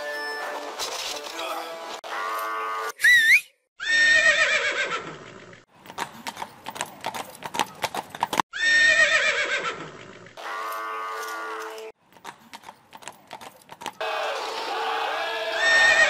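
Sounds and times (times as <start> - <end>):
horse whinnying: 3.8 - 5.3, 8.5 - 11.6, 14.0 - 16.0
hoofbeats clattering: 5.0 - 8.4, 11.2 - 14.8.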